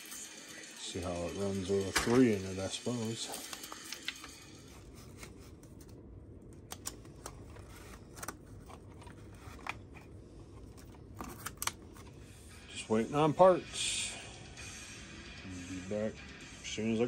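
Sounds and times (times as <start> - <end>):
low steady hum: 0.3 - 17.0
handling noises: 3.3 - 12.3.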